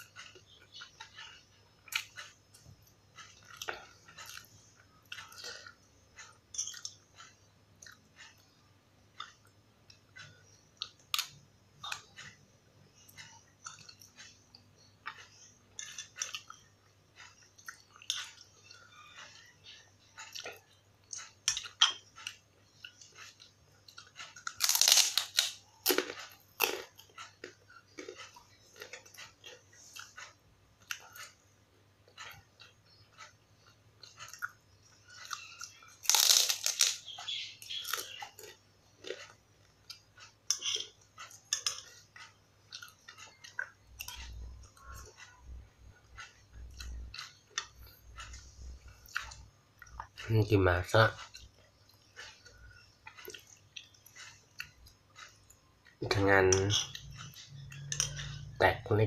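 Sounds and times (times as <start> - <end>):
mouth chewing and crunching: 0.0 - 59.0
crunchy bite into cracker: 24.6 - 26.9, 36.0 - 37.0.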